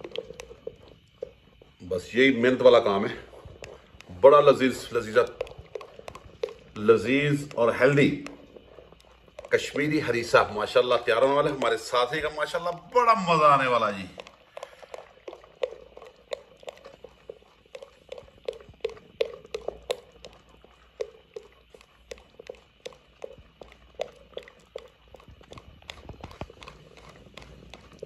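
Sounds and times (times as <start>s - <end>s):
wooden masher knocking and squelching: 2.1s - 14.7s.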